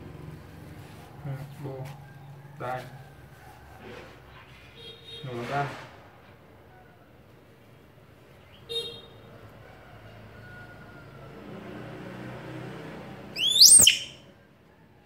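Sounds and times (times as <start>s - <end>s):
baby monkey squealing: 13.4s - 14.2s.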